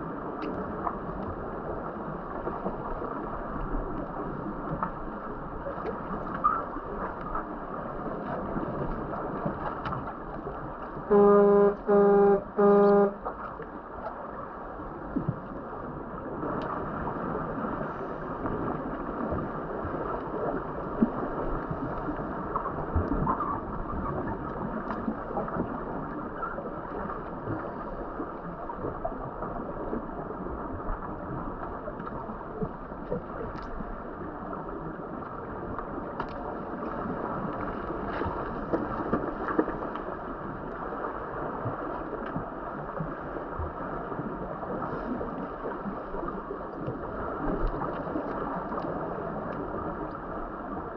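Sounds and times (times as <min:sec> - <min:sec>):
underwater bubbling water: 0:00.0 - 0:13.9, 0:14.7 - 0:50.9
underwater horn blasts: 0:11.0 - 0:13.5.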